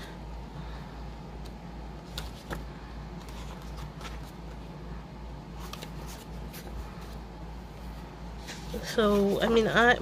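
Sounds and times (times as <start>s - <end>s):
steady low hum: 0.0s - 10.0s
card paper being handled: 2.0s - 4.7s, 5.6s - 9.7s.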